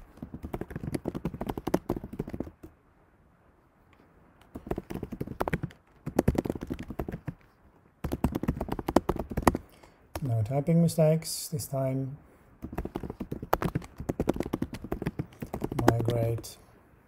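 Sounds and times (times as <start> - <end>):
typing on computer keyboard: 0.0 - 2.7, 4.5 - 7.4, 8.0 - 10.3, 12.6 - 16.5.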